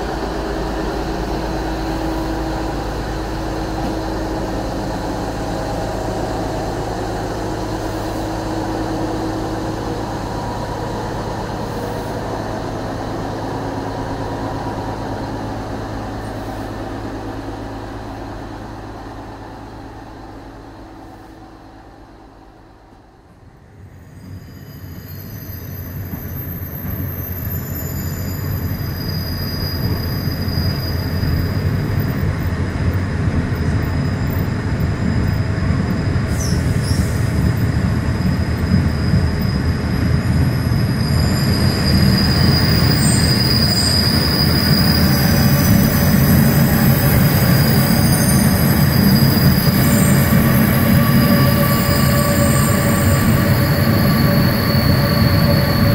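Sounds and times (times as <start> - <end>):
locomotive rumbling: 0.0 - 23.3, 26.0 - 55.9
wheel squeal: 24.1 - 32.2, 36.4 - 55.9
sharp screech: 40.8 - 55.9.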